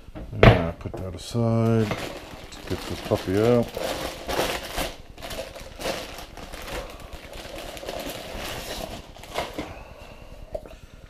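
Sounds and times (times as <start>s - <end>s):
plastic bag crinkling: 1.6s - 10.3s.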